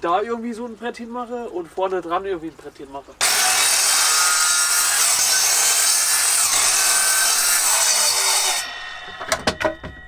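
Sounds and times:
mitre saw cutting wood: 3.2 - 9.4.

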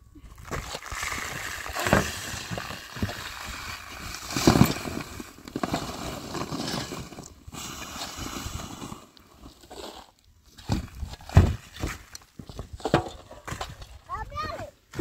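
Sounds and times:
crinkling rustles: 0.2 - 14.1
dirt scraped over plastic sacking: 0.3 - 10.2.

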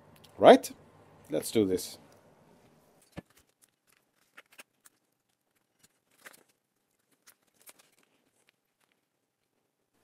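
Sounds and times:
faint clicks and rustles of handling: 2.0 - 10.0.

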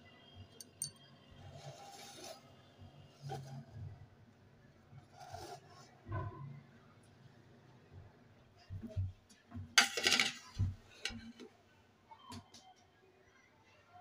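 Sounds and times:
faint rubbing and scraping: 1.3 - 4.3, 4.9 - 6.8.

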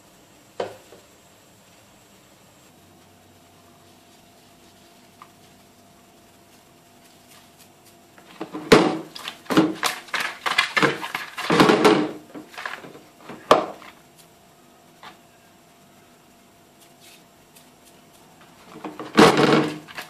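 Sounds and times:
fish pieces clattering in plastic bowl: 8.3 - 13.9, 18.7 - 20.0.

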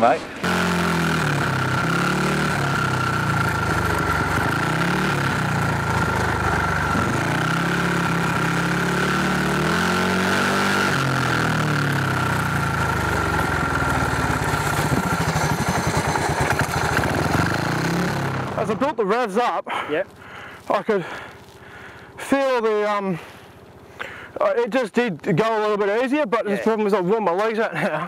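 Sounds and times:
motorcycle engine revving: 0.3 - 19.0.

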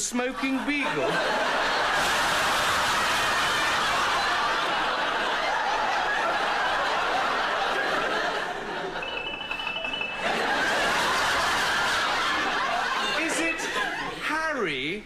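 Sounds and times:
studio audience laughing: 0.2 - 14.3
brief high tone: 9.0 - 10.6.

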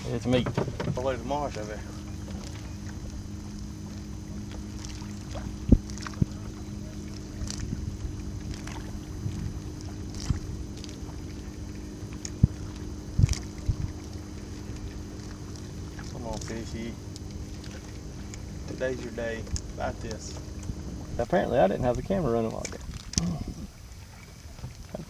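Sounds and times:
light wind: 0.0 - 25.0
low hum: 0.0 - 25.0
water around boat: 0.0 - 25.0
dull knocks on boat: 0.2 - 2.5.

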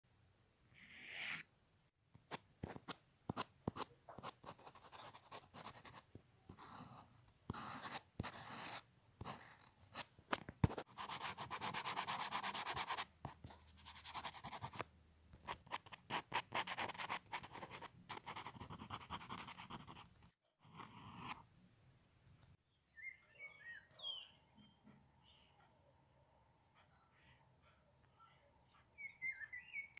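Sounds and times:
charcoal scratching on paper: 0.8 - 1.4, 2.6 - 10.1, 10.7 - 14.8, 15.5 - 21.5
charcoal rubbing on paper: 10.8 - 13.1.

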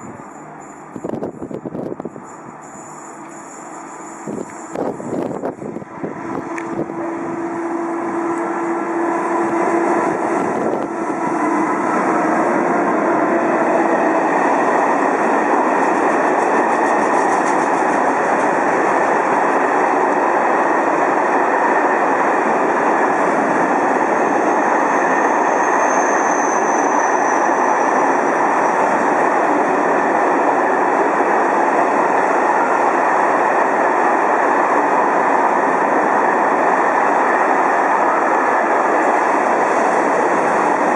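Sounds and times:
faint high squeal: 0.0 - 5.3, 24.2 - 28.9
train wheels rumbling on rail: 0.0 - 40.9.

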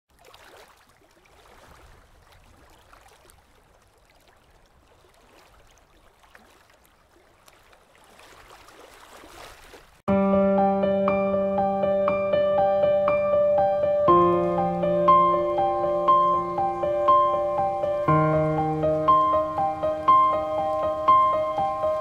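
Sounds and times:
piano music: 10.1 - 22.0.

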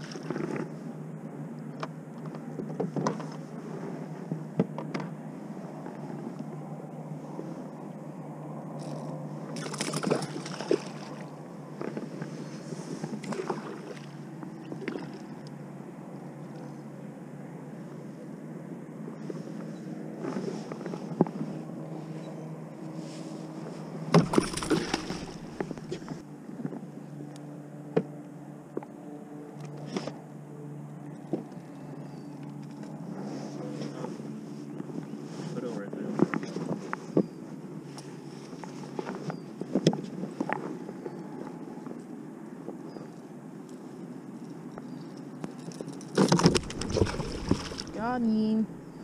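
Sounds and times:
water splashing: 9.6 - 11.3, 13.2 - 14.2, 24.2 - 26.2, 46.2 - 49.0
steady low hum: 21.0 - 32.3, 46.3 - 49.0.

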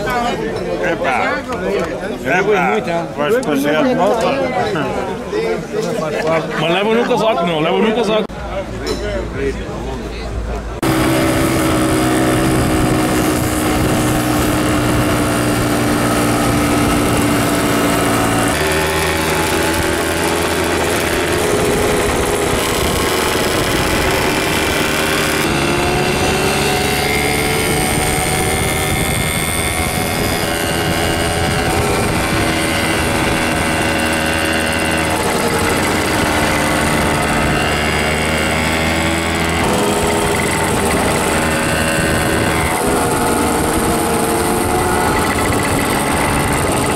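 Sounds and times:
moped engines revving: 10.8 - 46.9.

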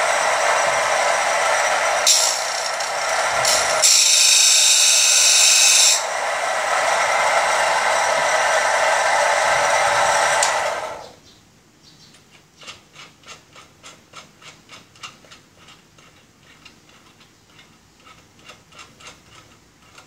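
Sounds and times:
grinder motor running: 0.0 - 11.1.

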